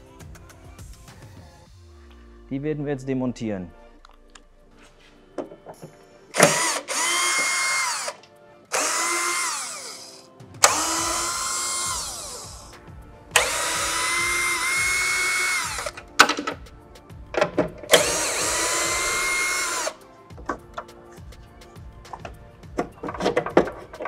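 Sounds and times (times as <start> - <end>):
cordless drill motor whining: 6.4 - 12.7, 13.4 - 15.9, 17.9 - 20.0.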